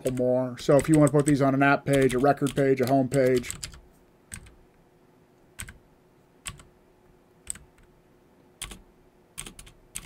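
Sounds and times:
keyboard keystrokes: 0.8s - 4.6s, 8.6s - 8.8s.

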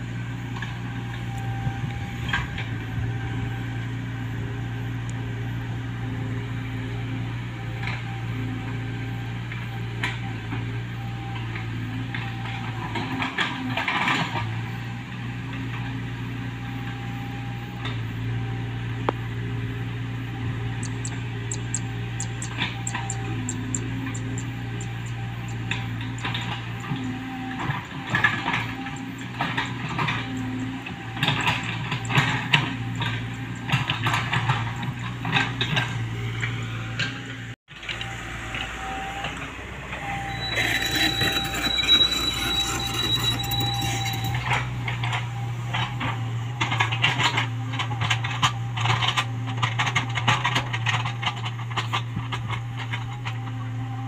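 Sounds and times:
excavator diesel engine hum: 0.0s - 54.0s
excavator bucket clanking and scraping: 1.5s - 3.4s, 11.3s - 14.9s, 20.4s - 38.6s, 39.3s - 54.0s.

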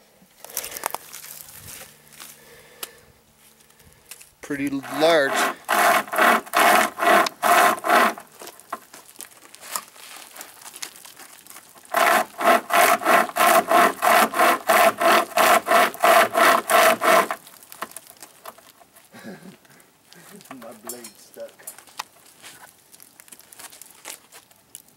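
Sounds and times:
chain saw rasping through wood: 4.4s - 8.8s, 11.4s - 19.0s, 20.2s - 22.6s.

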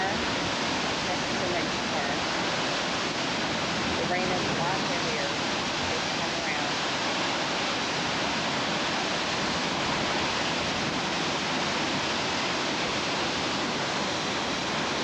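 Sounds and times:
heavy wind-driven rain: 0.0s - 15.0s
hurricane wind: 0.0s - 15.0s.

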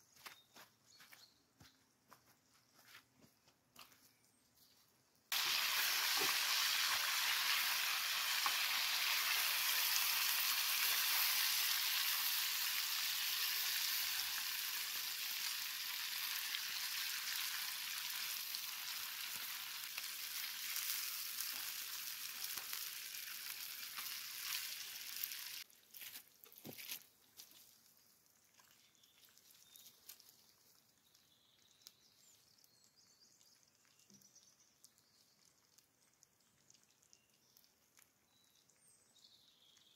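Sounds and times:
food sizzling in a frying pan: 5.3s - 25.7s.

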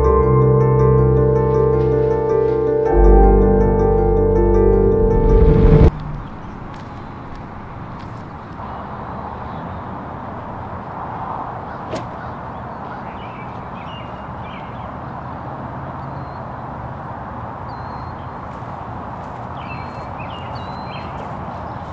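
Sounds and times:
low background rumble: 2.9s - 7.8s
small birds chirping: 11.6s - 15.3s, 19.2s - 21.9s
sharp crack: 11.9s - 12.2s.

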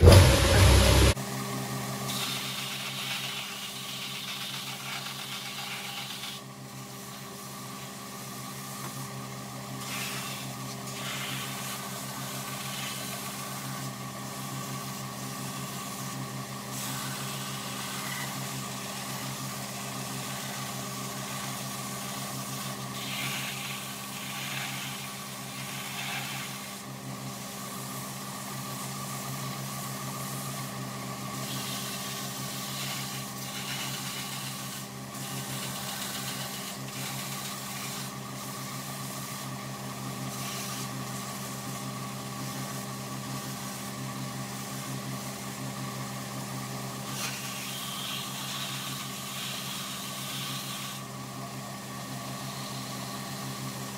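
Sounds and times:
belt grinder motor hum: 0.0s - 1.2s
hissing rasp on sanding belt: 2.1s - 6.4s, 9.8s - 26.9s, 31.4s - 39.5s, 40.2s - 41.6s, 47.0s - 51.1s.

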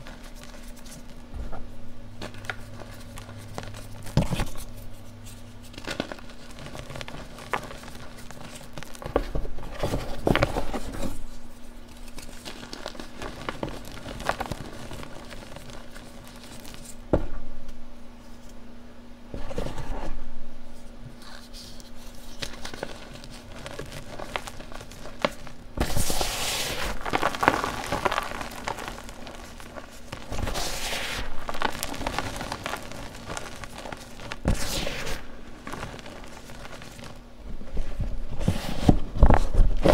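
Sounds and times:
faint steady hum: 0.0s - 39.9s
chalk crunching and crumbling: 2.2s - 17.0s, 21.2s - 37.3s.

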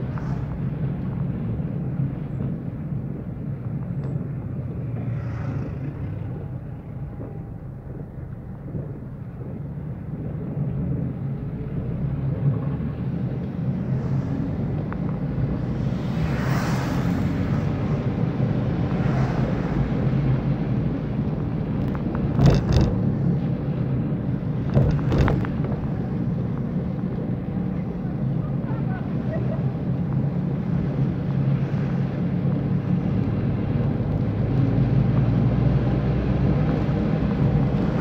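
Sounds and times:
engine and road hum: 0.0s - 38.0s
windscreen wiper knocks: 21.7s - 23.1s, 24.6s - 26.6s.

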